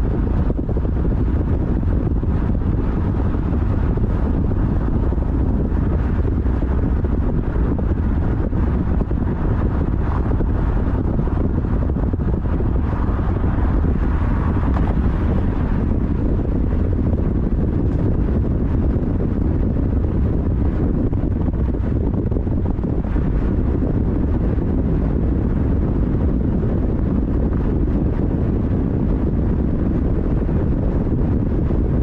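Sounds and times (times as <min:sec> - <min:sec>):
vehicle road noise: 0:00.0 - 0:32.0
wind buffeting microphone: 0:00.0 - 0:32.0.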